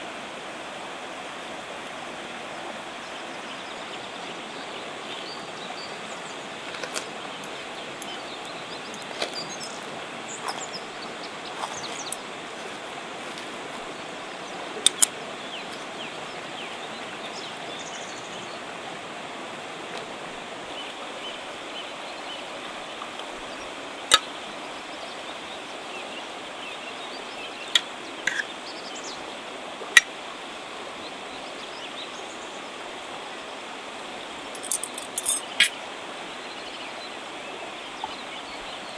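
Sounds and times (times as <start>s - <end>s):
river flowing: 0.0s - 38.9s
cutlery clinking on metal plate: 34.6s - 35.7s.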